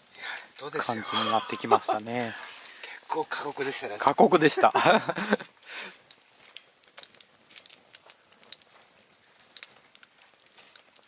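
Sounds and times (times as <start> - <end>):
faint crackling clicks: 0.1 - 4.3, 4.9 - 11.0.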